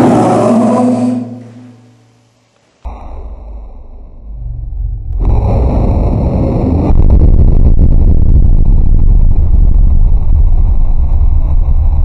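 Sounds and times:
low explosion rumble: 2.9s - 12.0s.

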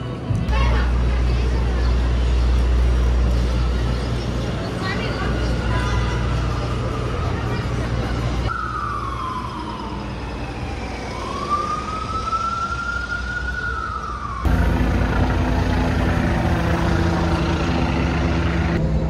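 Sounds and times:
traffic noise: 0.0s - 19.0s
emergency siren wailing: 5.1s - 18.8s
low engine hum: 14.3s - 19.0s.

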